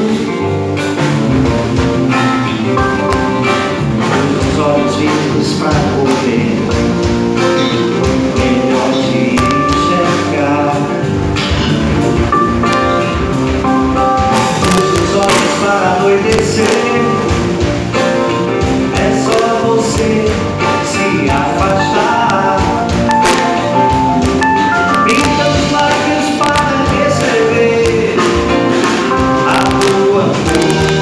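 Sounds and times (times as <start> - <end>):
man singing: 0.0 - 0.6, 2.8 - 11.3, 14.4 - 17.7, 18.6 - 23.7, 24.8 - 31.0
acoustic guitar: 0.0 - 31.0
electric bass: 0.0 - 31.0
keyboard: 0.0 - 31.0
steady beat: 0.7 - 31.0.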